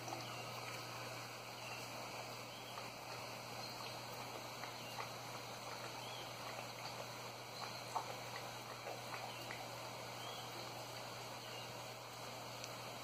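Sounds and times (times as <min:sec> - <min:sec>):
dog lapping from metal bowl: 0:02.2 - 0:10.5.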